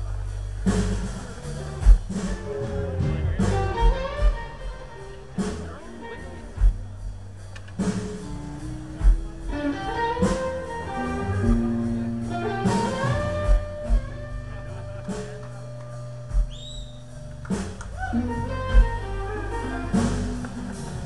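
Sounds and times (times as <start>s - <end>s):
blues band playing: 0.0s - 21.0s
low drum thumps: 1.8s - 5.9s, 6.5s - 9.5s, 16.3s - 21.0s.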